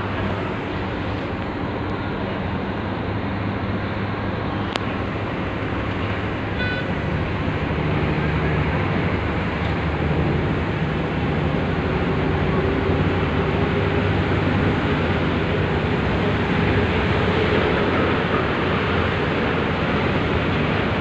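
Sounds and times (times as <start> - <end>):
harbour noise: 0.0 - 21.0
low engine drone: 0.0 - 21.0
high-pitched toot: 6.6 - 6.9.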